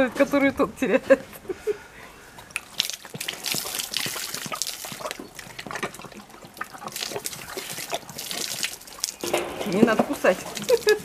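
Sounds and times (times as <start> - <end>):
bear slurping water: 2.1 - 11.0
water splashing from hose: 2.6 - 11.0.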